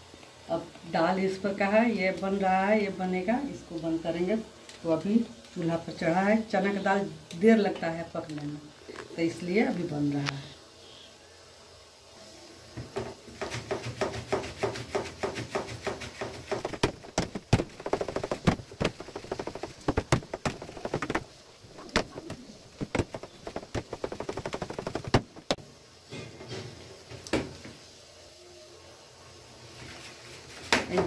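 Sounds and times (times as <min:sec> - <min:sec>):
hand beating wet batter: 0:13.3 - 0:25.6.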